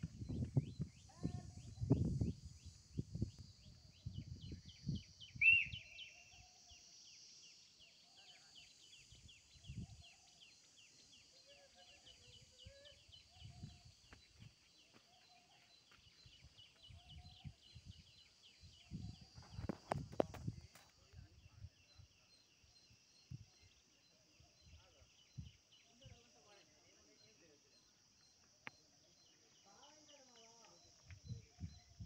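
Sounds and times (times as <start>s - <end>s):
wind rumble on microphone: 0.0s - 5.8s, 9.1s - 10.2s, 12.3s - 14.5s, 16.4s - 22.2s, 23.3s - 23.6s, 24.5s - 26.2s, 31.0s - 32.0s.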